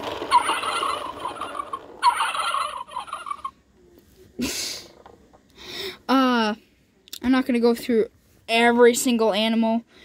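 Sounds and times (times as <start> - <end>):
toy turkey gobble from small speaker: 0.3 - 3.6.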